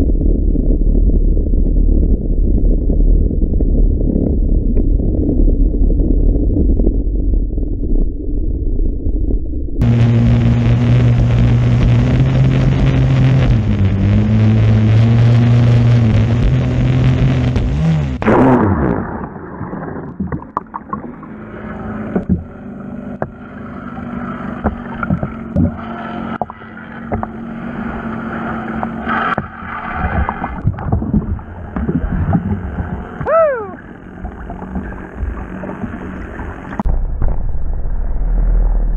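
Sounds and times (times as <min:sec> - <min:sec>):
underwater bubbling: 0:00.0 - 0:36.9
boat engine running high: 0:09.8 - 0:18.9, 0:20.8 - 0:36.9.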